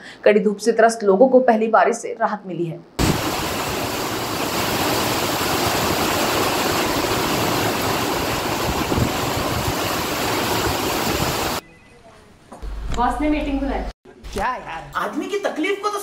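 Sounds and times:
heavy rain hiss: 3.0s - 11.6s
wind buffeting microphone: 6.8s - 11.6s.

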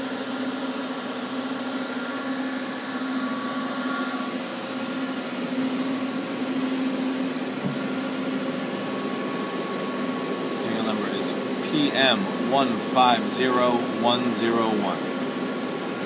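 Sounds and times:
cooling fan whir: 0.0s - 16.0s
machine electrical hum: 0.0s - 16.0s.

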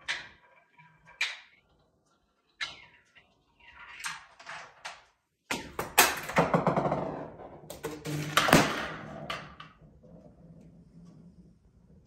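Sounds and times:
ball knocking into toy car: 5.5s - 9.7s
balloon popping: 7.8s - 9.2s.

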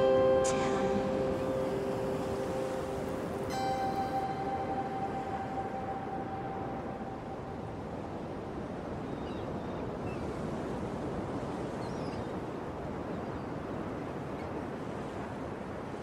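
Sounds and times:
sea surf washing: 0.0s - 11.8s
wind: 0.0s - 16.0s.

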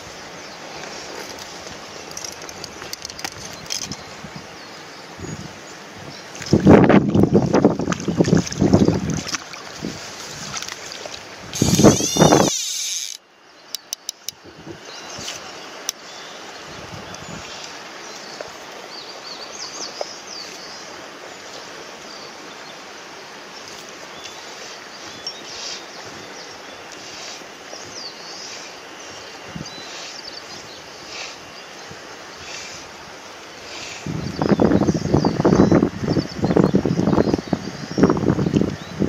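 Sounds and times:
steady outdoor hiss: 0.0s - 39.0s
wind buffeting microphone: 1.6s - 12.6s, 34.0s - 39.0s
birds chirping: 11.6s - 22.8s, 23.6s - 32.9s.

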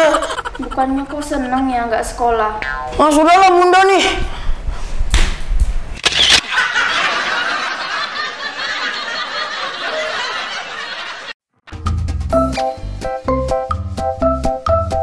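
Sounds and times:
audience laugh track: 6.4s - 11.4s.

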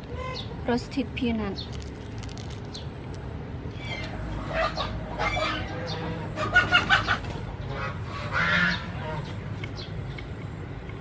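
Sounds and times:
chickens clucking: 3.8s - 9.7s.

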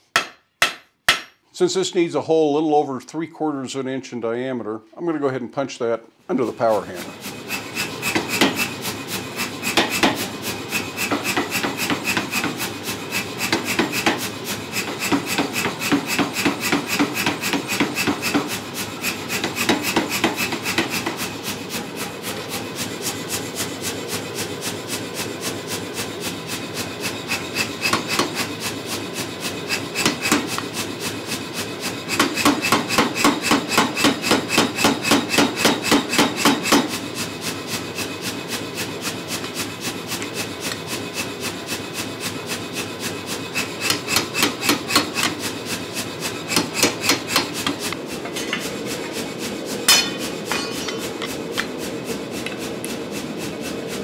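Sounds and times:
power hammer striking steel: 0.0s - 1.4s, 7.5s - 24.5s, 26.5s - 28.8s, 29.5s - 30.8s, 31.9s - 37.0s, 43.5s - 49.0s, 49.8s - 51.8s.

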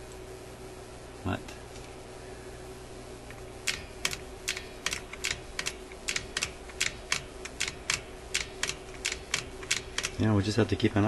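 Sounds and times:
sharp mechanical clicks: 3.3s - 10.2s.

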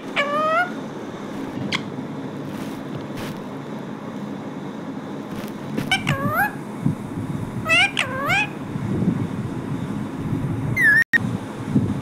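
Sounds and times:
parakeet calling: 0.0s - 2.0s, 5.8s - 6.7s, 7.6s - 8.6s, 10.8s - 11.1s.

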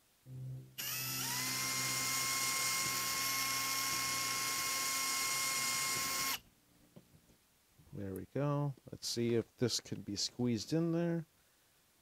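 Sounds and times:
cordless drill motor whine: 0.8s - 6.4s.

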